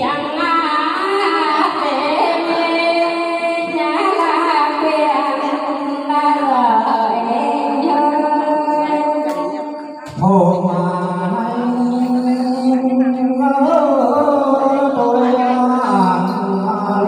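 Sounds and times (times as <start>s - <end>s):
man singing in lower voice: 9.5s - 17.0s.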